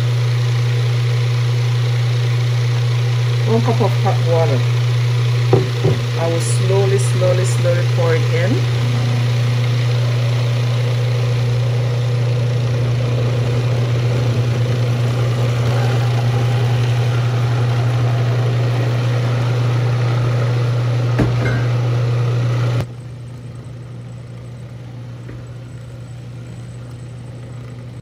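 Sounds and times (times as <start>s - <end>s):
food processor motor running: 0.0s - 28.0s.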